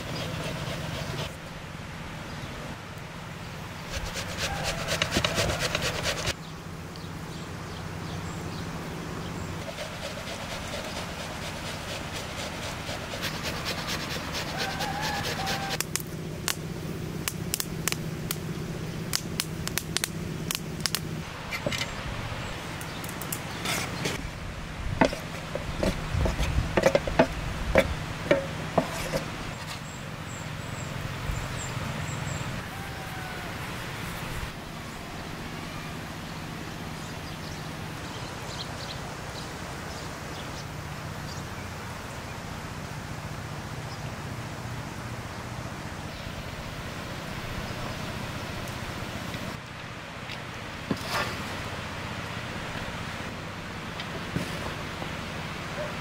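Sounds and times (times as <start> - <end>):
onion grated on metal grater: 3.9 - 6.3, 9.6 - 15.8
wood fire crackling: 13.8 - 24.2.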